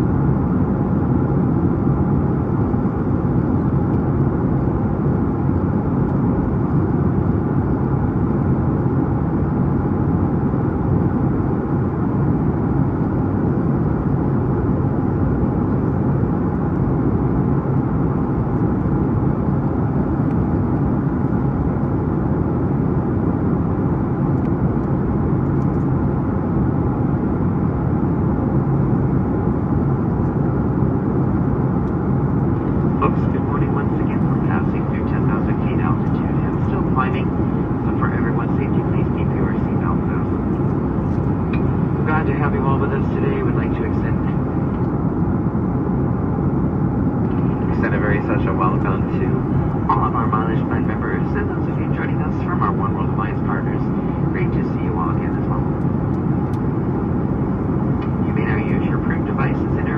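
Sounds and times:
faint steady hum: 0.0 - 59.9
jet engines at climb power: 0.0 - 59.9.

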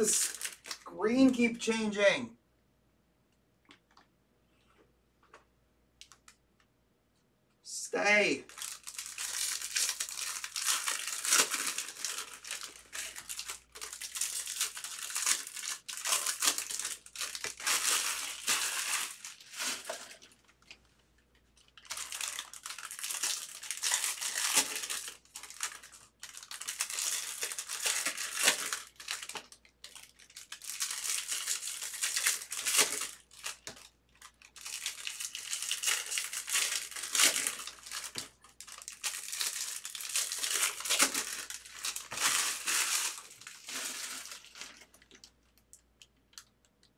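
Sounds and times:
foil wrappers tearing and crinkling: 0.0 - 0.8, 8.5 - 20.4, 21.7 - 45.2.

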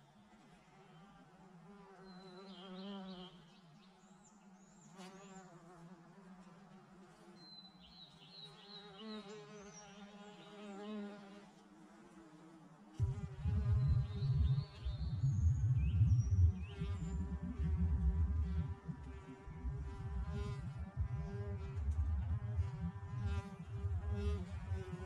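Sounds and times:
bees buzzing: 13.0 - 25.0.

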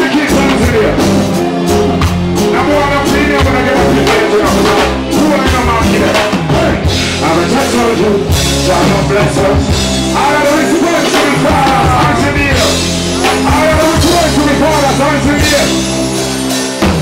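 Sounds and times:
reggae band music: 0.0 - 17.0
person singing: 2.4 - 16.0.

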